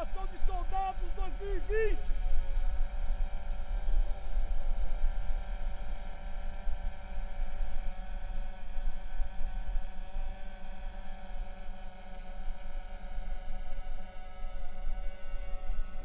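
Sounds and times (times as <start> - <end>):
faint steady high tones: 0.0 - 2.1.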